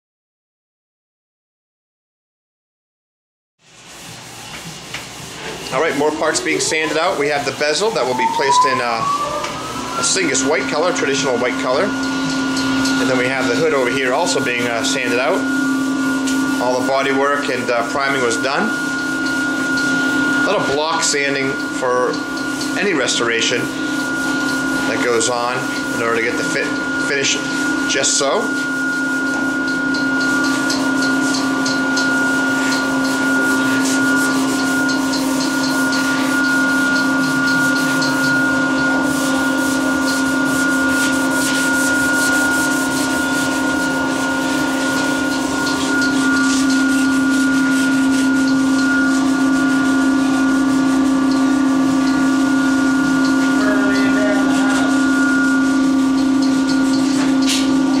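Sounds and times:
sandpaper rubbing on metal panels: 0:03.6 - 0:19.9, 0:30.3 - 0:51.4
steady hum: 0:03.7 - 0:58.0.

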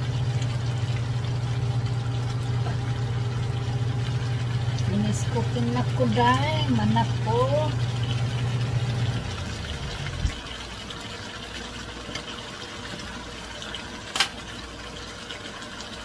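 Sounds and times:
low hum: 0:00.0 - 0:10.5
sauce simmering in a frying pan: 0:00.0 - 0:16.0.

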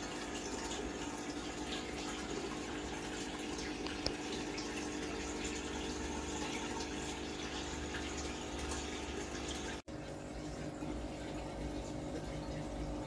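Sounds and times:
aquarium pump humming: 0:00.0 - 0:13.0
moving water: 0:00.0 - 0:13.0.

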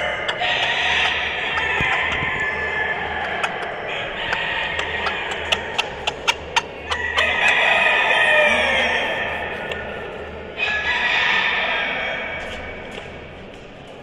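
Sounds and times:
rooster crowing: 0:06.9 - 0:09.4, 0:10.6 - 0:12.3.

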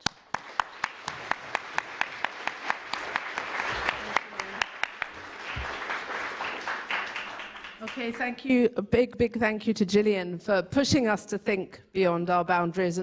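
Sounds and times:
one person clapping sharply: 0:00.0 - 0:08.0
audience applause: 0:00.0 - 0:08.4.

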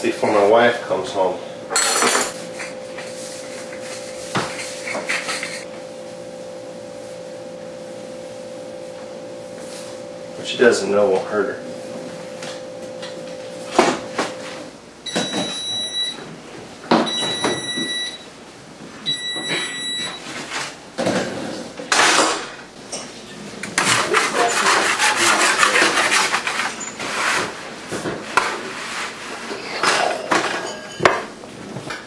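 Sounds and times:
oven control beeps: 0:15.0 - 0:16.2, 0:17.1 - 0:18.3, 0:19.0 - 0:20.2.

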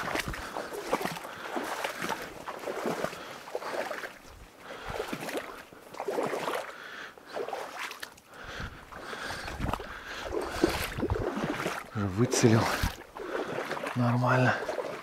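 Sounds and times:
water splashing: 0:00.0 - 0:15.0.

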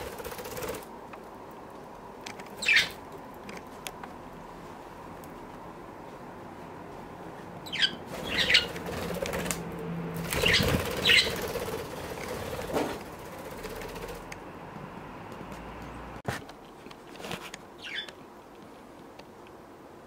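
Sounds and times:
birds flapping wings: 0:00.0 - 0:01.0, 0:08.1 - 0:14.4.

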